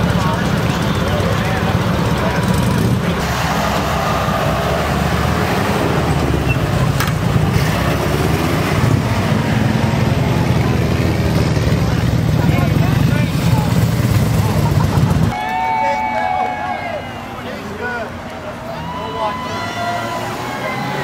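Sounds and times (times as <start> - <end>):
motorcycle engines running: 0.0 - 15.4.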